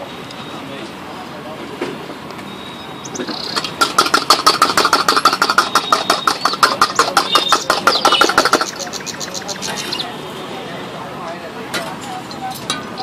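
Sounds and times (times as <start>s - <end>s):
small engine puttering: 3.0s - 10.0s.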